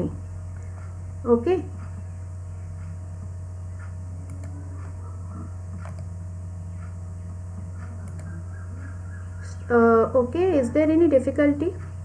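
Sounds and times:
low electrical hum: 0:00.0 - 0:12.0
computer mouse clicks: 0:03.8 - 0:05.0, 0:05.7 - 0:06.1, 0:07.8 - 0:08.4.

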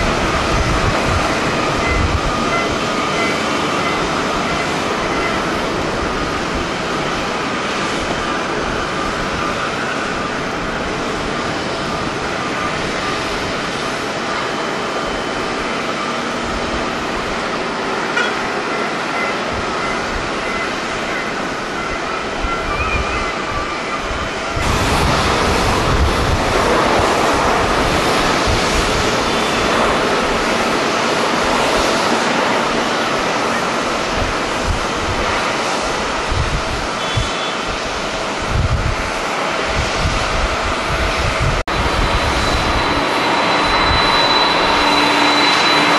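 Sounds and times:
jet engines rushing: 0:00.0 - 0:45.9
wind buffeting microphone: 0:00.0 - 0:45.9.

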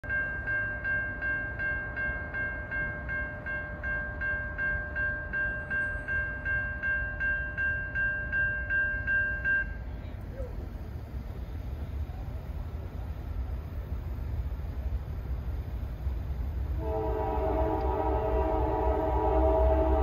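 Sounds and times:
crossing bell ringing: 0:00.0 - 0:10.2
train rumbling past: 0:00.0 - 0:20.0.

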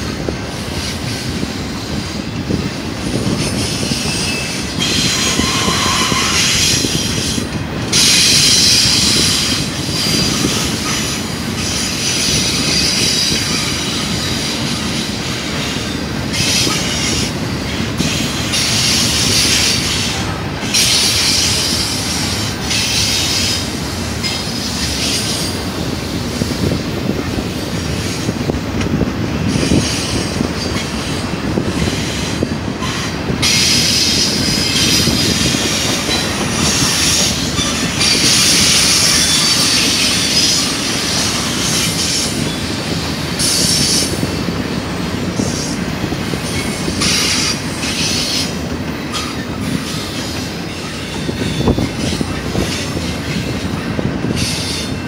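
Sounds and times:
train wheels rolling on rails: 0:00.0 - 0:55.0
high-pitched wheel squeal: 0:03.9 - 0:07.2.

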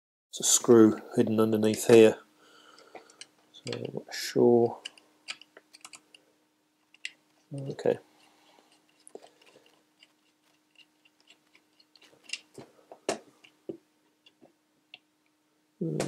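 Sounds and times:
plastic parts being handled: 0:04.7 - 0:06.2, 0:06.8 - 0:15.1
screwdriver clicks and ticks: 0:04.8 - 0:06.1.

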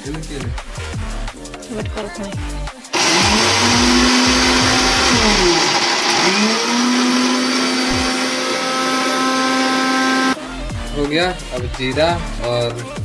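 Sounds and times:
mixer grinder motor whine: 0:02.9 - 0:10.4.

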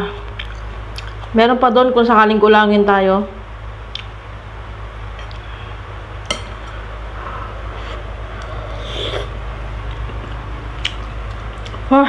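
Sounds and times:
steady low hum: 0:00.0 - 0:12.0
metal spoon clinking on glass bowl: 0:06.3 - 0:06.6.

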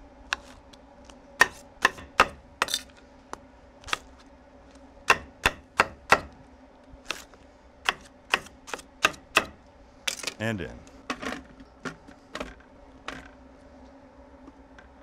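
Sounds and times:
knife chopping on metal griddle: 0:01.4 - 0:02.8, 0:05.1 - 0:06.3, 0:07.9 - 0:09.6.

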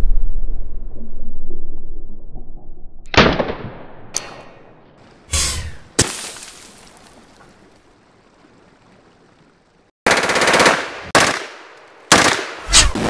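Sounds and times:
submachine gun firing bursts: 0:10.1 - 0:13.0.

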